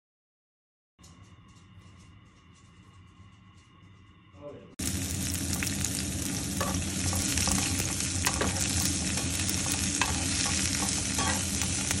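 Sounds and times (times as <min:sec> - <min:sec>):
vegetables sizzling in oil: 0:04.8 - 0:12.0
spatula scraping and tapping pan: 0:06.6 - 0:12.0.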